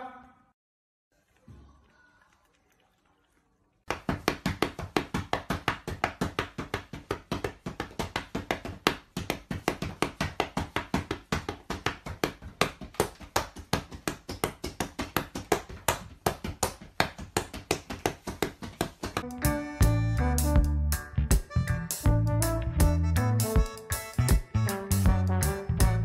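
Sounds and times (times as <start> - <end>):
fast sharp taps: 3.9 - 19.2.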